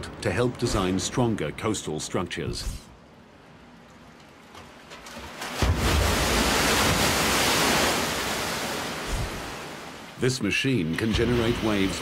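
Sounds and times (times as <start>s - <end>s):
rushing churning water: 5.3s - 10.2s, 10.9s - 12.0s
wave crashing: 5.4s - 10.2s.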